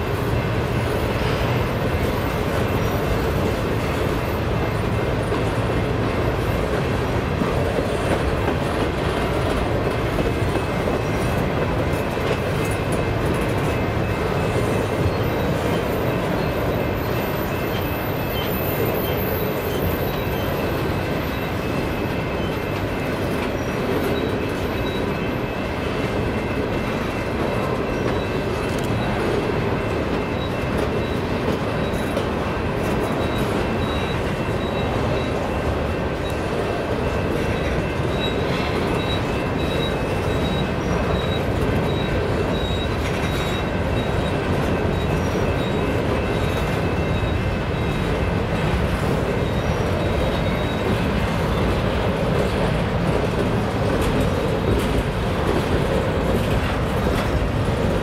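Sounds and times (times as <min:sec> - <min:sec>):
train wheels rumbling on track: 0:00.0 - 0:58.0
high wheel squeal: 0:13.4 - 0:58.0.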